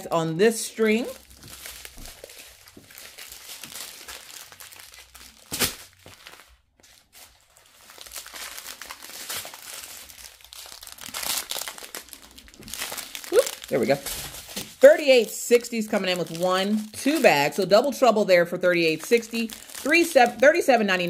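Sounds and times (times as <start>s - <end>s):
plastic bags crinkling: 0.8s - 18.1s, 18.7s - 21.0s.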